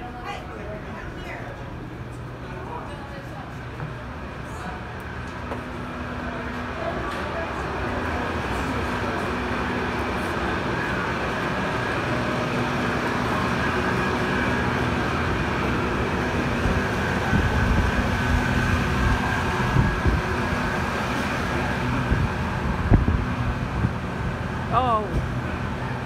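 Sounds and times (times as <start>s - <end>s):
mechanical drone: 5.0s - 26.0s
wind buffeting microphone: 16.4s - 21.0s, 21.6s - 24.3s.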